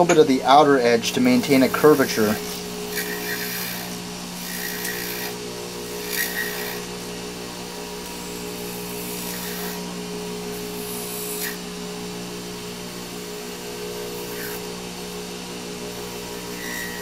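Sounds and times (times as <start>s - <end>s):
lathe motor humming: 0.0s - 17.0s
blade scraping metal disc: 1.0s - 6.9s, 9.0s - 9.8s, 16.5s - 17.0s.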